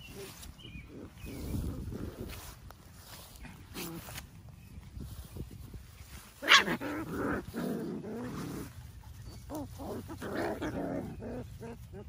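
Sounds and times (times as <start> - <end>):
puppies growling and whining: 6.4 - 12.0.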